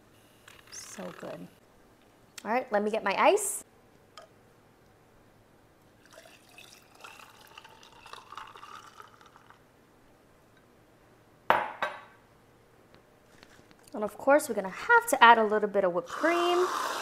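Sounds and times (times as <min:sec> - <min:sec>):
coffee pouring into a glass: 0:06.0 - 0:09.6
glass cup knocking on counter: 0:11.5 - 0:12.1.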